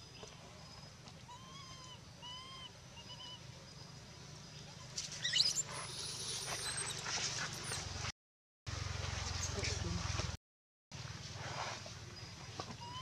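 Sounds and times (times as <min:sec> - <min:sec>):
monkey shrill screams: 0:01.3 - 0:03.4, 0:05.2 - 0:07.0
monkey coo calls: 0:01.3 - 0:03.5.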